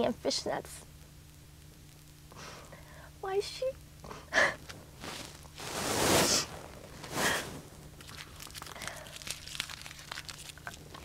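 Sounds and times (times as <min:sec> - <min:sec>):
woman sobbing: 0:04.1 - 0:04.7
faint rustling: 0:04.6 - 0:11.0.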